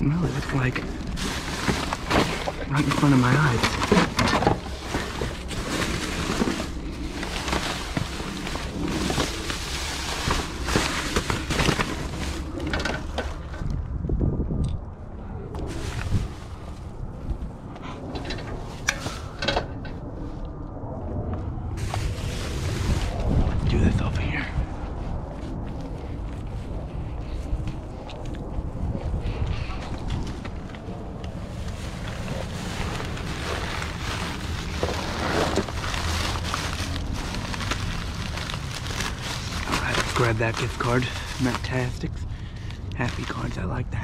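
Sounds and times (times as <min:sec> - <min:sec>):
wind rumble: 0:00.0 - 0:44.0
plastic bag rustling and crinkling: 0:00.1 - 0:13.7, 0:15.6 - 0:17.4, 0:21.8 - 0:24.4, 0:29.8 - 0:44.0.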